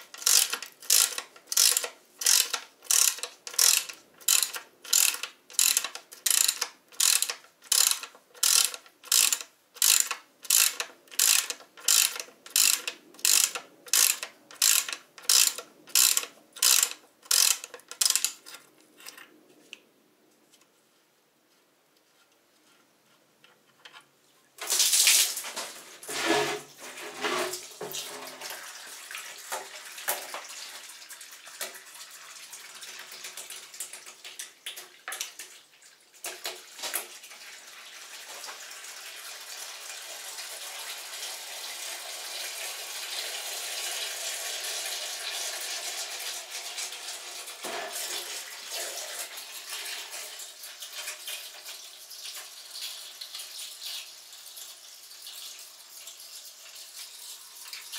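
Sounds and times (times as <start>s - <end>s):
steady pouring stream: 27.3s - 57.9s.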